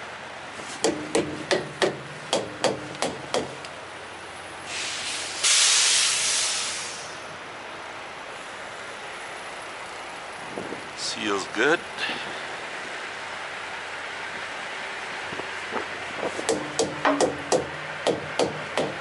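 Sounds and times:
sharp ringing knocks: 0.8s - 3.6s, 16.5s - 19.0s
compressed air hissing: 4.6s - 7.3s.

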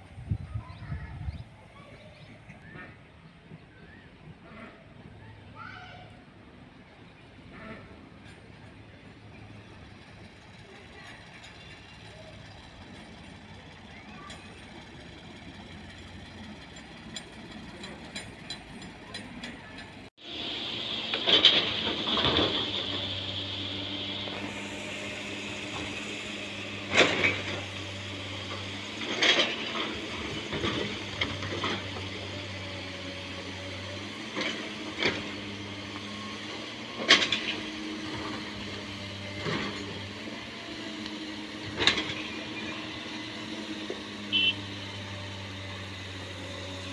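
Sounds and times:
diesel engines running: 0.0s - 46.9s
metallic clanks and knocks: 16.7s - 20.1s.

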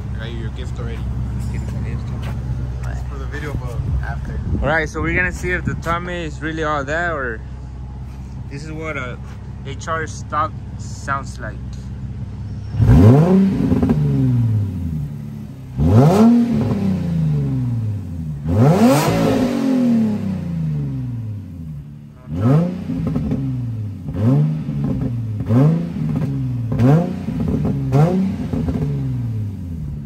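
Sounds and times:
car engine idling and revving: 0.0s - 30.0s.

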